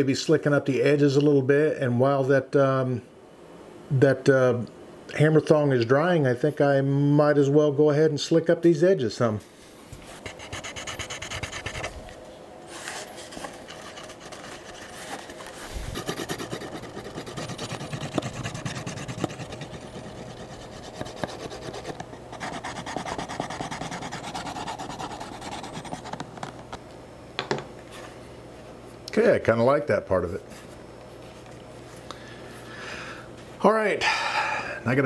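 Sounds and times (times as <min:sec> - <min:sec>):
edge slicker rasping on leather: 0:10.2 - 0:11.9, 0:13.8 - 0:26.2.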